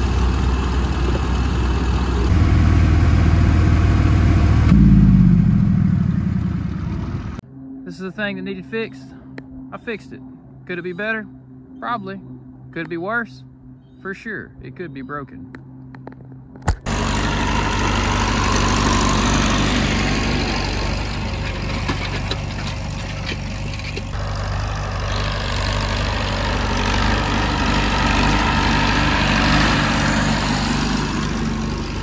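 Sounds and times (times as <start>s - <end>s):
tractor engine running loud: 0.0s - 7.4s, 16.8s - 32.0s.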